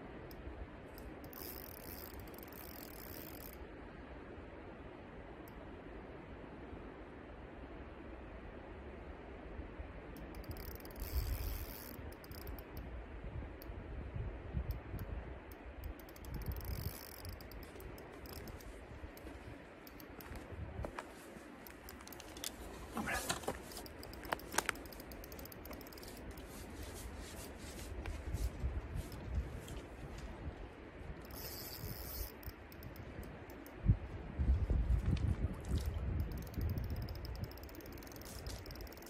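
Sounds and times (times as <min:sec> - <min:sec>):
fishing reel clicking: 0:01.0 - 0:03.6, 0:10.2 - 0:12.9, 0:15.8 - 0:20.2, 0:23.7 - 0:26.5, 0:31.2 - 0:33.8, 0:35.8 - 0:39.0
wind buffeting microphone: 0:10.3 - 0:21.1, 0:27.9 - 0:39.0.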